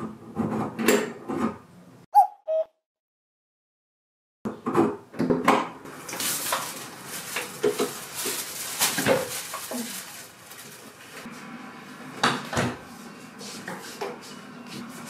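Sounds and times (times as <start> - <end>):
plastic bags rustling: 5.9 - 11.3.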